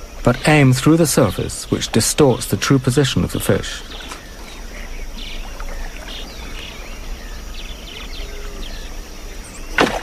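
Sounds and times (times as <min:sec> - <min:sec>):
faint bird chirps: 0:00.0 - 0:10.0.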